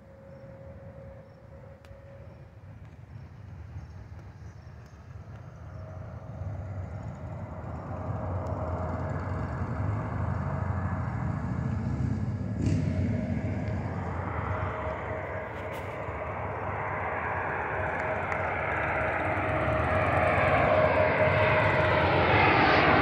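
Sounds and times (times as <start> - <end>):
jet airliner engines: 0.0 - 23.0.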